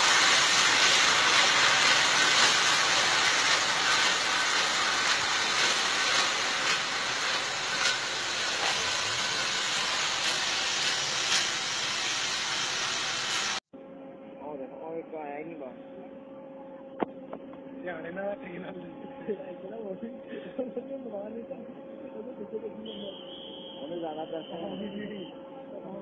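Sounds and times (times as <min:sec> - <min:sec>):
hissing rustle of hauled bags: 0:00.0 - 0:13.6.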